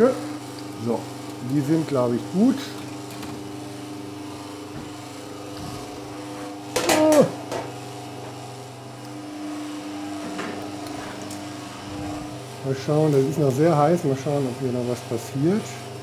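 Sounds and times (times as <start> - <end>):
kitchen appliance motor humming: 0.0 - 16.0.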